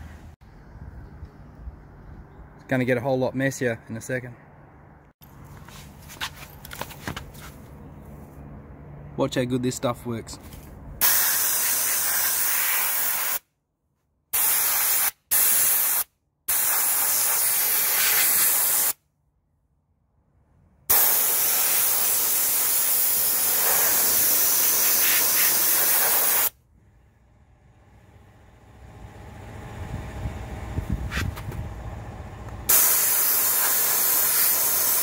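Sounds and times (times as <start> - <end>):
air nozzle hissing: 11.0 - 13.4, 14.4 - 19.0, 20.9 - 26.5, 32.7 - 35.0.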